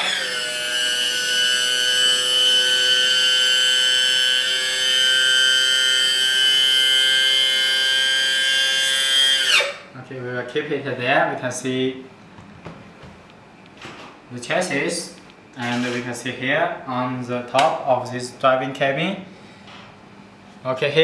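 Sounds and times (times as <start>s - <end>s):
electric hydraulic pump whining: 0.0s - 9.9s.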